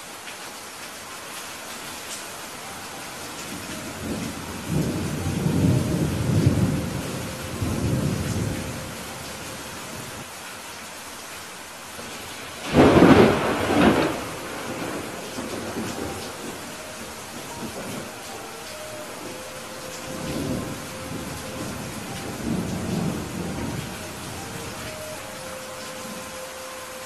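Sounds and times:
steady rain hiss: 0.0s - 27.0s
rolling thunder rumble: 3.8s - 9.3s, 12.6s - 24.9s.

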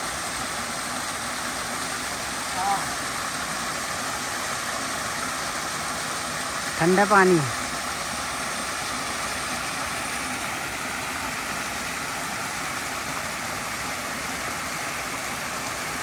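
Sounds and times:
stream water rushing: 0.0s - 16.0s.

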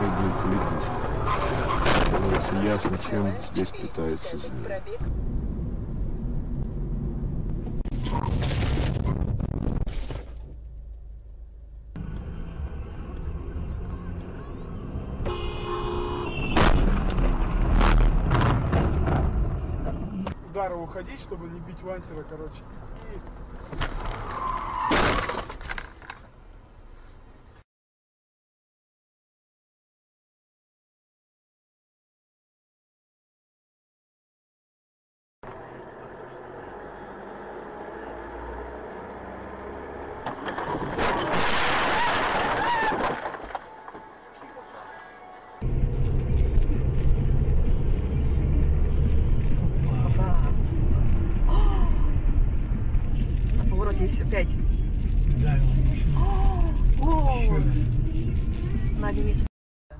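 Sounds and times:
car engine and road noise: 0.0s - 27.6s, 35.4s - 59.5s
car collision bang: 16.4s - 19.5s
harsh crash noise: 40.2s - 43.6s.

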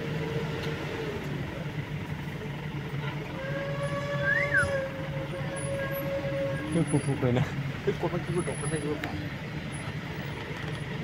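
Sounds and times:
low engine hum: 0.0s - 11.0s
long horn-like tone: 3.2s - 6.9s.

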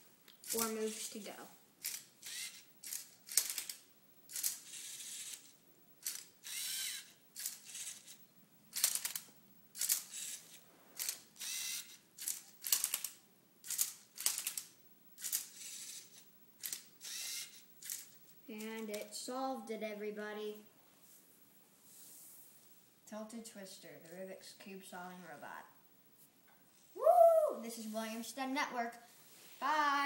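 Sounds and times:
robot servo motors whirring: 1.8s - 9.2s, 9.8s - 18.1s.

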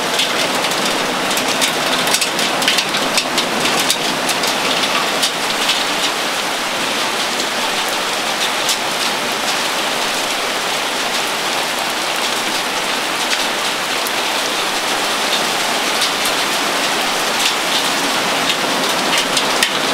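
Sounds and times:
hailstones clicking: 0.0s - 19.9s
rain on a wooden deck: 0.0s - 19.9s.

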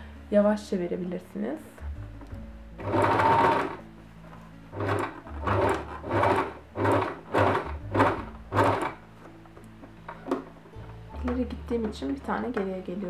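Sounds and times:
sewing machine stitching: 2.8s - 3.8s, 4.7s - 9.0s.

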